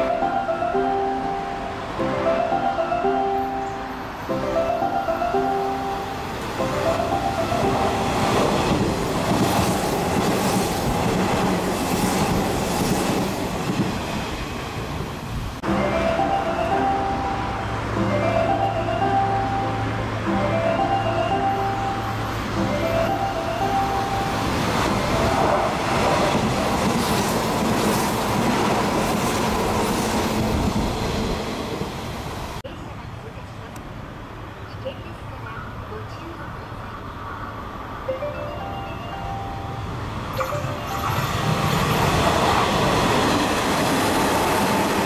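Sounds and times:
electric train passing at speed: 0.0 - 45.0.

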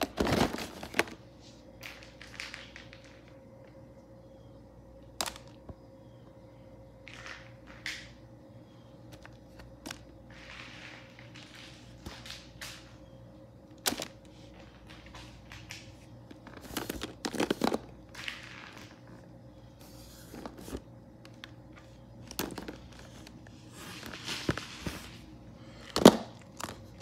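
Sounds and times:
plastic toy figures clattering: 13.8 - 19.2, 20.3 - 23.3.

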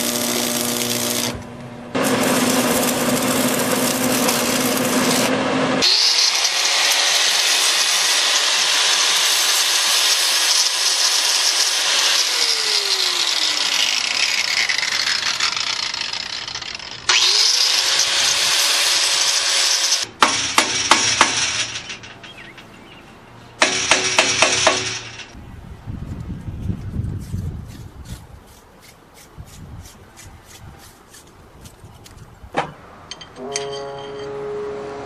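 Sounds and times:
angle grinder grinding steel: 0.0 - 1.4, 2.0 - 23.0.

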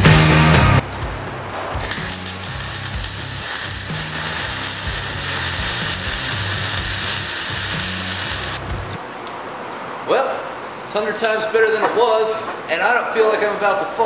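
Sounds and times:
rock music: 0.0 - 9.0
arc welding crackling hiss: 1.8 - 8.7.

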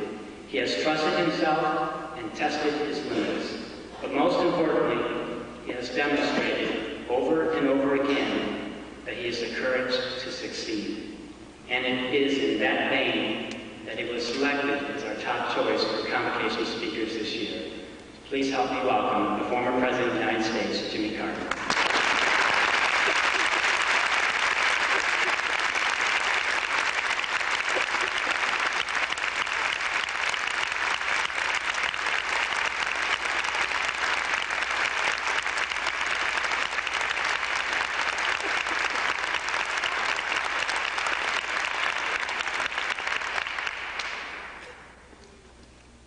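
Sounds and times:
audience applauding: 21.5 - 44.6.

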